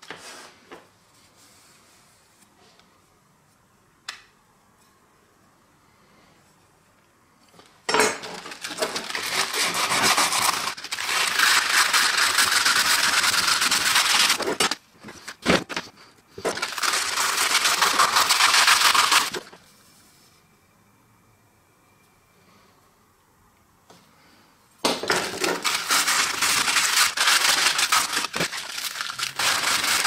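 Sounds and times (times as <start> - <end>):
sandpaper rasping on steel blade: 9.0 - 14.5, 16.6 - 19.4.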